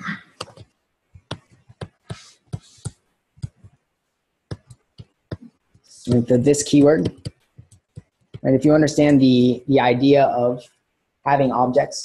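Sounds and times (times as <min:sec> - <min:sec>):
stylus tapping on tablet screen: 0:00.3 - 0:03.8, 0:04.5 - 0:08.5.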